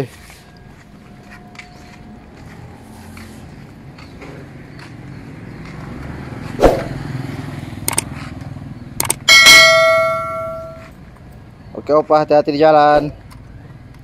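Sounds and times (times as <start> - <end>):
sharp knock: 6.6 - 7.0
metal object ringing like a bell: 9.3 - 10.9.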